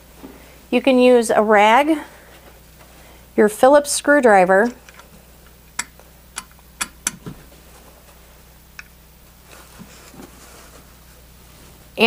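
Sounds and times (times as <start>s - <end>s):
cloth rag rustling: 9.4s - 11.8s.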